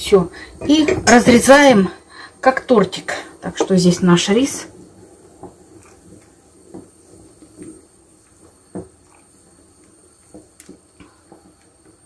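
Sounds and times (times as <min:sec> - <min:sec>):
faint kitchen clicks and knocks: 0:00.5 - 0:01.8, 0:03.4 - 0:04.1.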